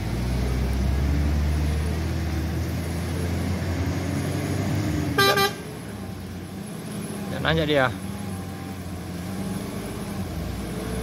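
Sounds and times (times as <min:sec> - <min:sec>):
diesel truck engine under load: 0:00.0 - 0:11.0
truck horn beep: 0:05.2 - 0:05.6.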